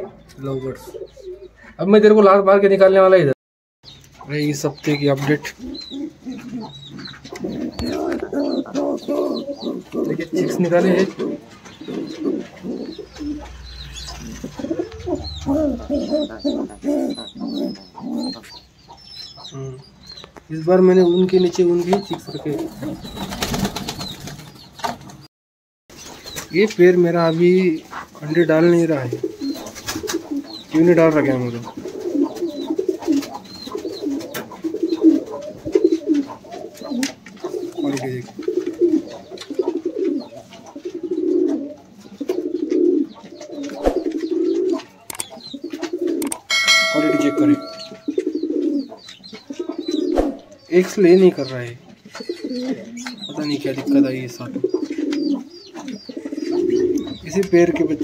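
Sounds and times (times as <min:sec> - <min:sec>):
pigeon cooing: 0:00.8 - 0:01.7, 0:05.5 - 0:18.6, 0:29.1 - 0:30.8, 0:31.6 - 0:50.7, 0:52.0 - 0:58.0
thin high bird chirps: 0:46.2 - 0:48.6.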